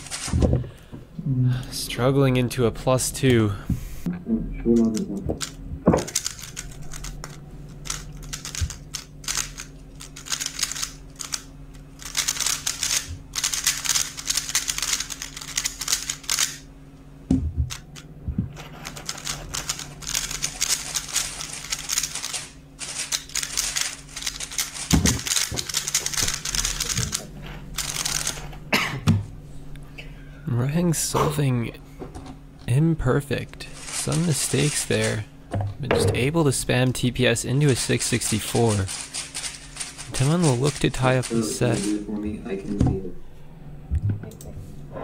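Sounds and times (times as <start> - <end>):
steady low hum: 0.0 - 45.0
puzzle cube plastic clacking: 4.8 - 16.6.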